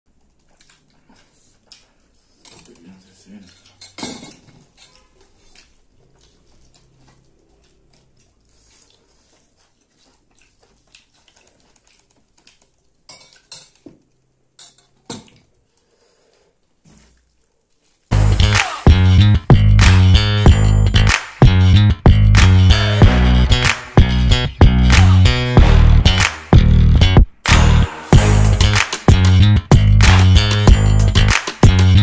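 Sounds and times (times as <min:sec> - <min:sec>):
spoons clinking on steel plates: 0:03.4 - 0:05.2, 0:13.1 - 0:13.8, 0:14.6 - 0:15.4.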